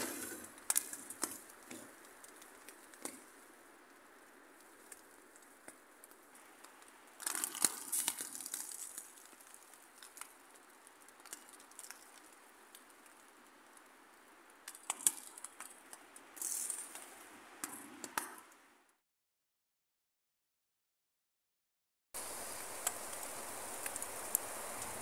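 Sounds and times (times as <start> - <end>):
tent fabric rattling in wind: 0.0 - 18.8, 22.2 - 25.0
faint steady hiss: 22.2 - 25.0.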